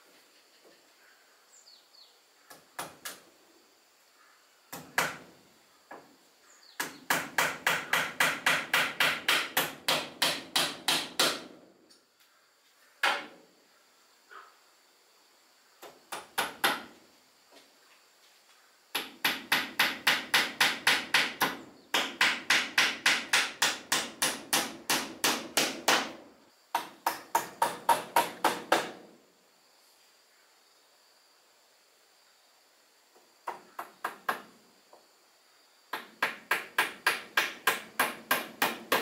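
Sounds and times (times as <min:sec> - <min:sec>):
hammer striking nails into wood: 0:04.7 - 0:05.3, 0:06.8 - 0:11.6, 0:15.8 - 0:16.9, 0:19.0 - 0:29.1, 0:33.5 - 0:34.5, 0:35.9 - 0:39.0.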